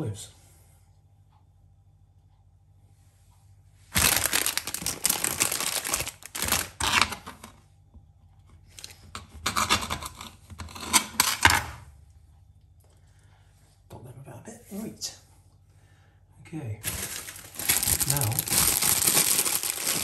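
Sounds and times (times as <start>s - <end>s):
sweet packet crackling: 3.9s - 7.2s, 16.8s - 20.0s.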